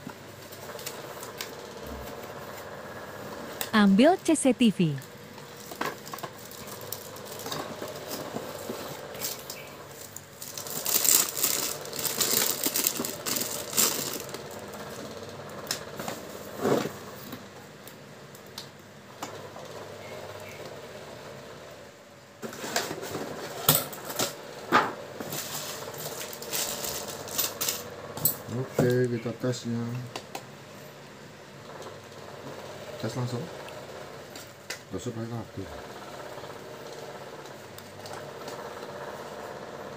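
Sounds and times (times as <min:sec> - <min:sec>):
plastic and cardboard crinkling: 0:10.4 - 0:14.3.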